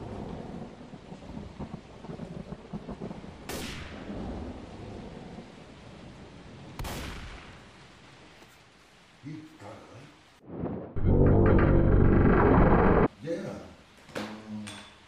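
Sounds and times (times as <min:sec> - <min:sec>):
sharp thunder cracks: 0:00.0 - 0:05.0
low thunder rumbling: 0:00.0 - 0:06.7
steady rain: 0:00.0 - 0:10.9.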